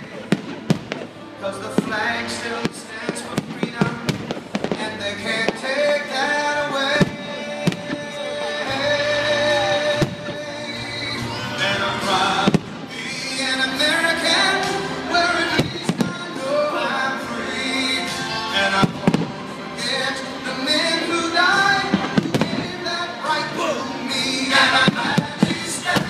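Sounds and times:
fireworks bangs: 0:00.0 - 0:06.0, 0:06.9 - 0:08.1, 0:09.9 - 0:10.6, 0:12.4 - 0:13.0, 0:15.5 - 0:16.4, 0:18.8 - 0:19.4, 0:21.8 - 0:22.9, 0:24.6 - 0:26.0
loud music with singing: 0:00.0 - 0:26.0.

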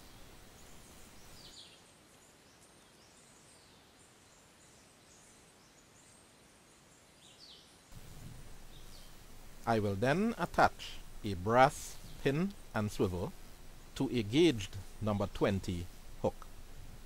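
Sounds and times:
faint high bird chirps: 0:00.0 - 0:07.8
faint outdoor hiss: 0:00.0 - 0:17.0.

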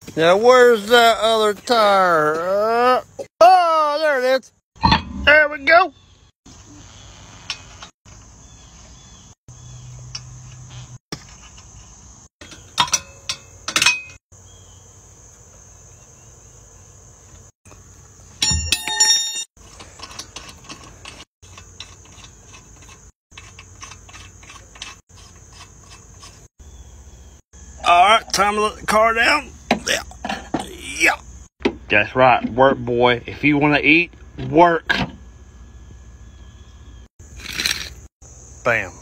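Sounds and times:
ringing metal clink: 0:18.4 - 0:19.5.

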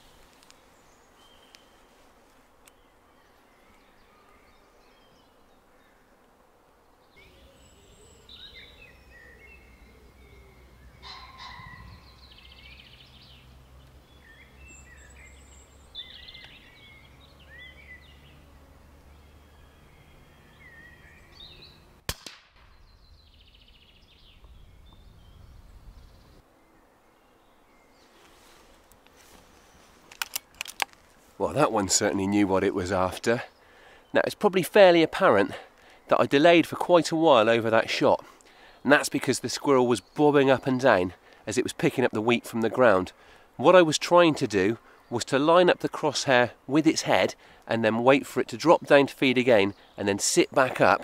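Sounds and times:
songbirds chirping and calling: 0:00.0 - 0:22.0, 0:22.6 - 0:51.0
air rifle shot: 0:22.0 - 0:22.9.

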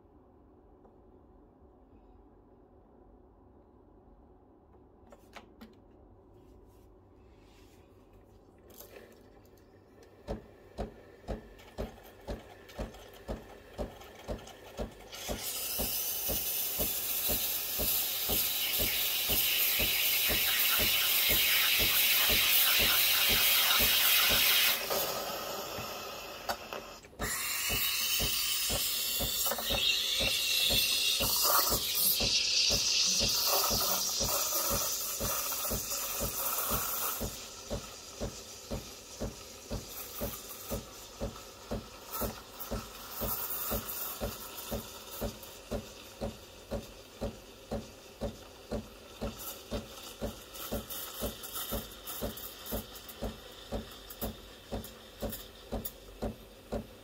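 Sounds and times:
coffee machine pulsing: 0:08.7 - 0:57.0
steam hissing from wand: 0:15.1 - 0:46.3.

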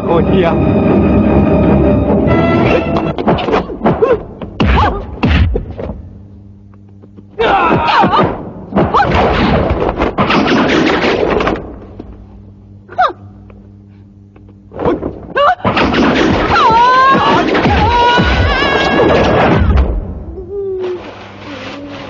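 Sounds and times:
punch and kick thuds: 0:03.2 - 0:06.0.

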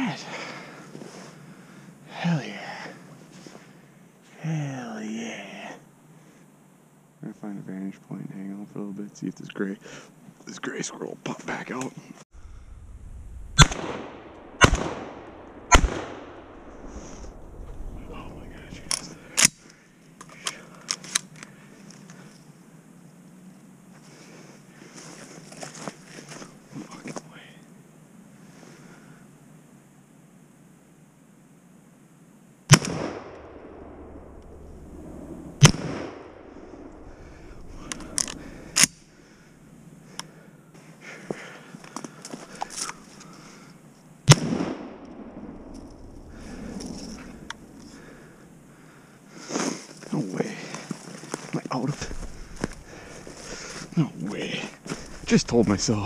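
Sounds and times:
gunshots with echo: 0:13.6 - 0:16.6
rifle shots echoing: 0:13.6 - 0:19.6, 0:32.7 - 0:39.2, 0:44.3 - 0:48.0.

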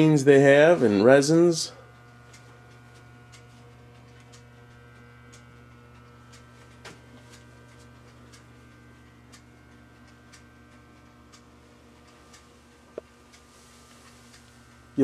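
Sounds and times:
electrical hum: 0:00.0 - 0:15.0
faint regular ticking: 0:00.0 - 0:15.0.

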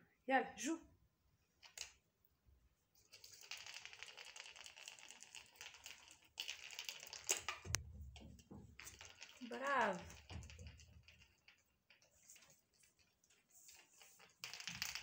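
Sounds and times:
ball rolling on hard floor: 0:03.2 - 0:15.0.

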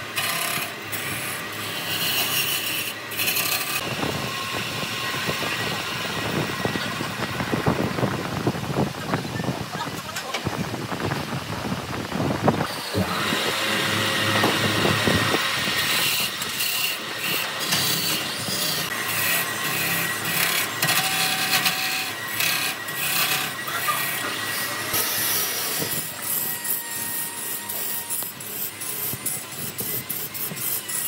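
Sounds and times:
tool rasping wood: 0:00.0 - 0:04.1, 0:12.9 - 0:31.0.

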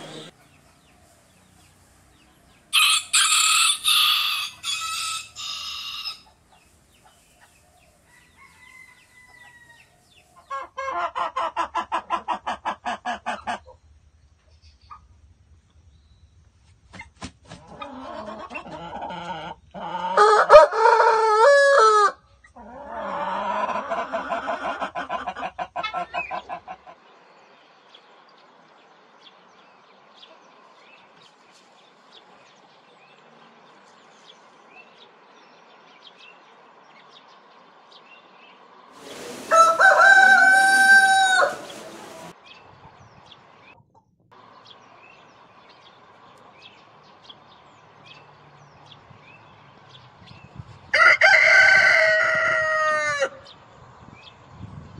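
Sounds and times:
roosters crowing: 0:00.0 - 0:00.4, 0:02.4 - 0:06.6, 0:07.7 - 0:12.3, 0:17.6 - 0:26.6, 0:39.0 - 0:42.4, 0:50.9 - 0:53.6.

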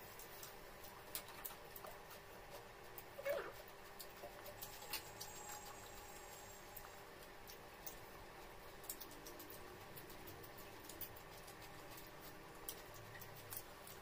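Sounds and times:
low steady hum: 0:00.0 - 0:14.0
faint small clicks: 0:06.8 - 0:14.0.

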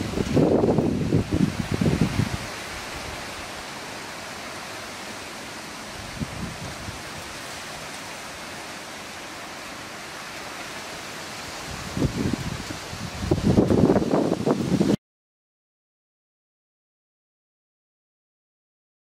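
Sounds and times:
steady background hiss: 0:00.0 - 0:14.9.

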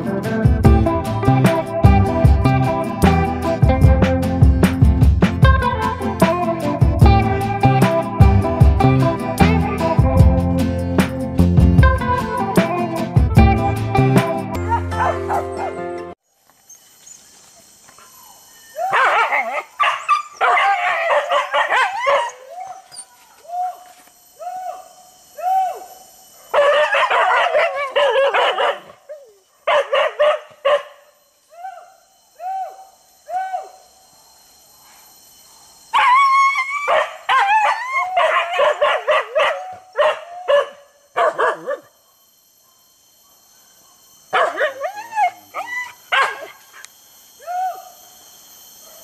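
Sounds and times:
dogs barking and yelping: 0:14.6 - 0:15.9, 0:17.8 - 0:23.8, 0:26.3 - 0:31.9, 0:35.9 - 0:46.9.

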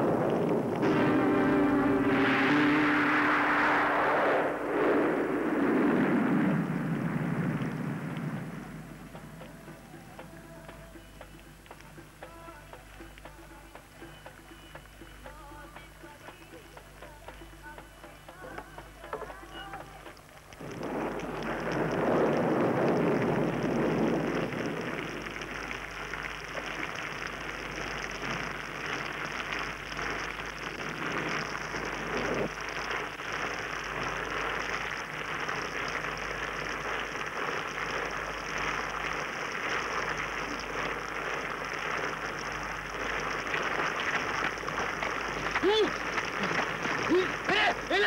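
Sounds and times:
low rumble: 0:00.0 - 0:10.7, 0:20.5 - 0:47.9
steady rain falling: 0:00.0 - 0:48.0.

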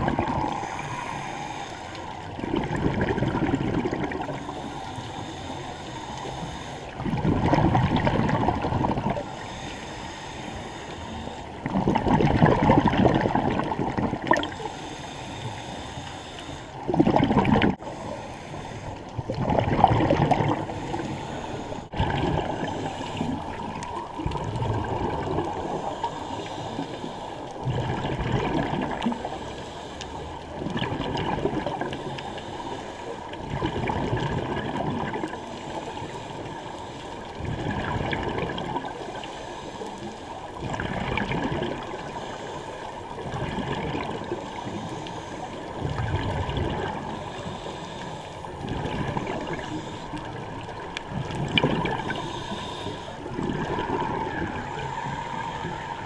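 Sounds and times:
bubbles gurgling underwater: 0:00.0 - 0:00.6, 0:02.3 - 0:04.4, 0:07.0 - 0:09.2, 0:11.6 - 0:14.6, 0:16.8 - 0:17.9, 0:19.1 - 0:20.9, 0:21.9 - 0:25.9, 0:27.6 - 0:29.3, 0:30.6 - 0:32.0, 0:33.4 - 0:35.4, 0:37.4 - 0:39.0, 0:40.6 - 0:42.1, 0:43.2 - 0:44.5, 0:45.6 - 0:47.2, 0:48.6 - 0:52.3, 0:53.2 - 0:54.9.

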